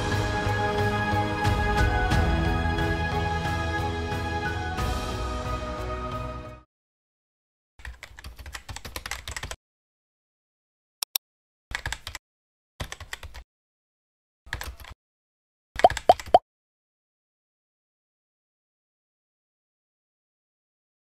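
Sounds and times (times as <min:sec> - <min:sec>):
keyboard typing clicks: 0:11.0 - 0:12.2, 0:12.8 - 0:13.4, 0:15.8 - 0:16.4.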